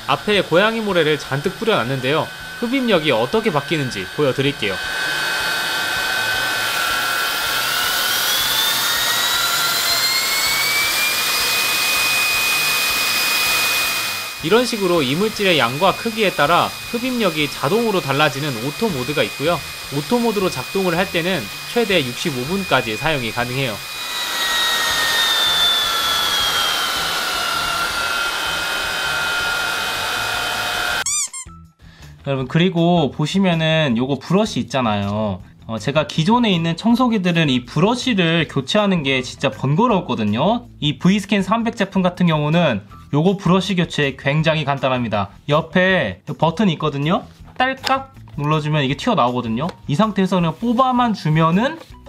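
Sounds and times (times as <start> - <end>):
stick vacuum motor whine: 0.0 - 31.4.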